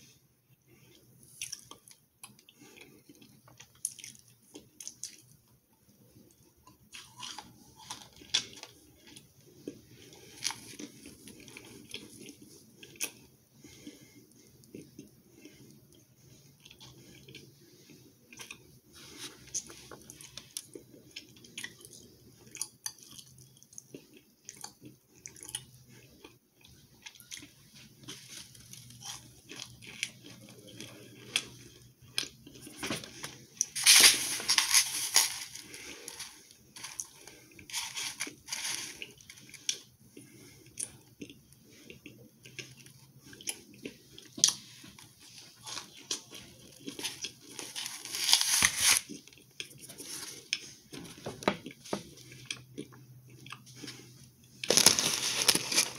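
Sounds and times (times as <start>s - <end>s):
crisp chewing crunches: 19.2s - 50.7s, 51.6s - 55.9s.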